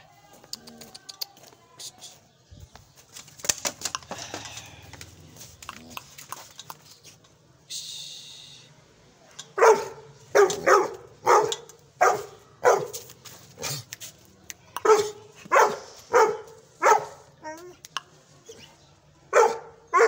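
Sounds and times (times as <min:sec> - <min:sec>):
dog barking sharply: 0:09.6 - 0:12.9, 0:14.8 - 0:17.2.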